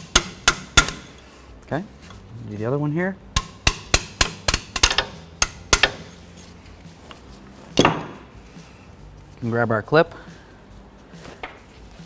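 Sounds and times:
hammer tapping metal punch: 0.0 - 1.2, 3.3 - 6.2.

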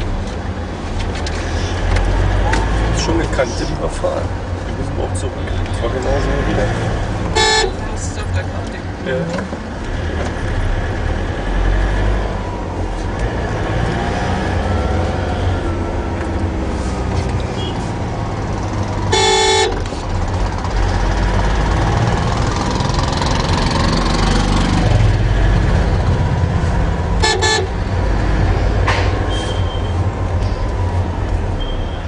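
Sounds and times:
car engine and road rumble: 0.0 - 32.0
vehicle horn blast: 7.3 - 7.8, 17.6 - 17.8, 19.1 - 19.8, 27.2 - 27.8.

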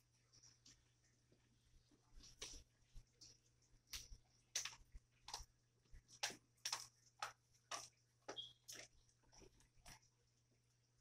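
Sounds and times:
clicks and taps on plastic pipe: 3.2 - 10.1.

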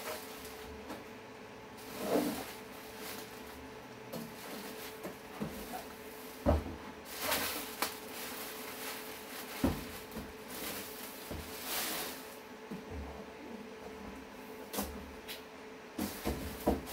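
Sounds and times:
plastic wrapping rustling: 0.0 - 0.8, 1.8 - 12.4.

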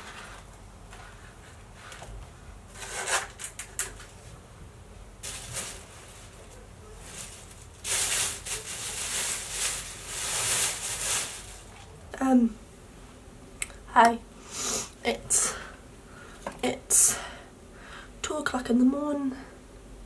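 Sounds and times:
plastic bag rustling loudly: 5.2 - 11.9.

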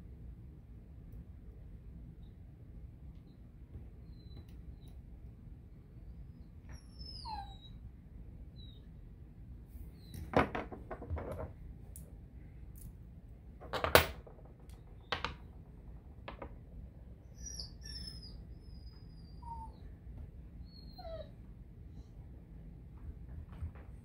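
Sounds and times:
metal parts knocking on wooden desk: 10.2 - 11.6, 13.6 - 16.6.

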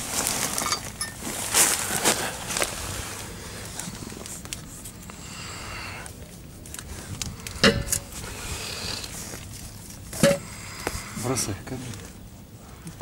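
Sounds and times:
handling metal parts: 0.4 - 1.3, 7.4 - 8.3, 9.3 - 10.5
sharp ringing metallic clink: 7.6 - 8.1.

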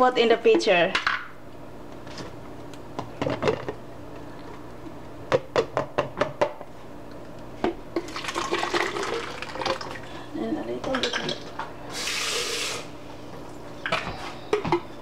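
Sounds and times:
thick puree pouring into pitcher: 8.0 - 10.1.

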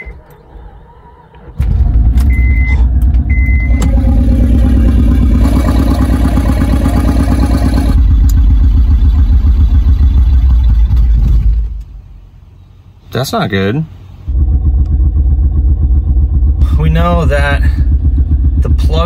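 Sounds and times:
car engine starting and running: 0.0 - 13.0, 14.0 - 19.0
short electronic beeps: 2.2 - 3.9.

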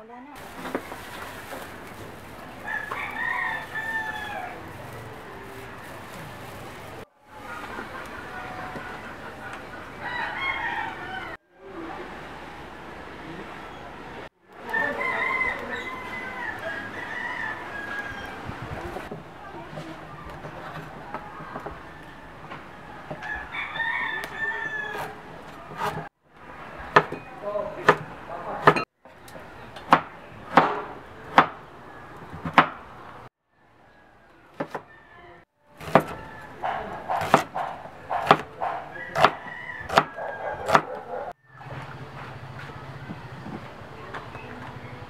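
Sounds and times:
rooster crowing: 2.6 - 4.7, 10.0 - 11.4, 14.6 - 18.6, 21.0 - 26.0, 33.8 - 35.4, 36.0 - 37.2, 38.6 - 41.8
cleaver chopping on wooden board: 29.9 - 31.6, 32.4 - 32.8, 35.8 - 41.0.

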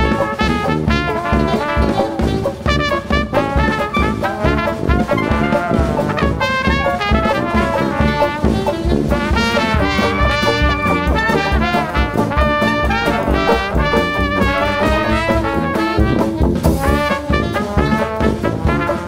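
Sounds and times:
brass-band jazz: 0.0 - 19.0.

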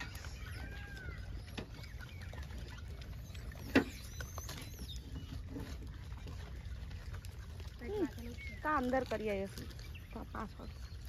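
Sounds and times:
faint bird chirps: 0.0 - 6.4.

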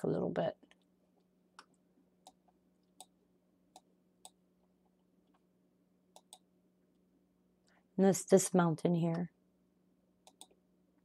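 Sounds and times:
faint steady hum: 0.0 - 11.0
computer mouse clicks: 1.6 - 4.4, 6.1 - 6.5, 10.2 - 10.6.

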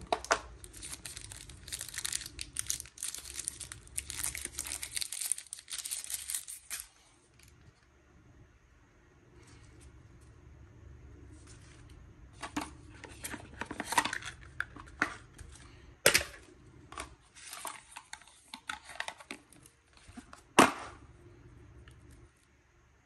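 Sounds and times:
cardboard packaging rustling: 0.0 - 7.5.

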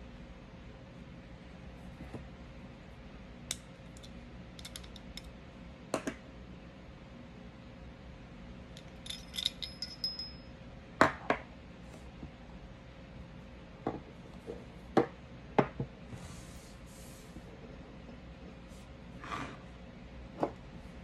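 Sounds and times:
metallic clinks of gun parts: 8.8 - 10.4.

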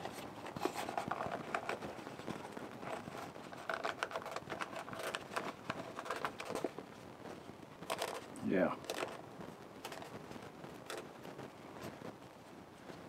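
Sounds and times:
bark rubbing and scraping: 0.0 - 6.7.

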